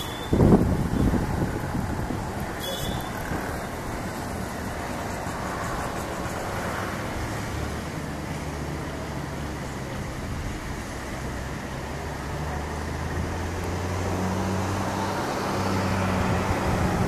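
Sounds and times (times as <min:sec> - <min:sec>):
high chirp: 0:00.0 - 0:00.4
vehicle engines rumbling: 0:00.0 - 0:17.0.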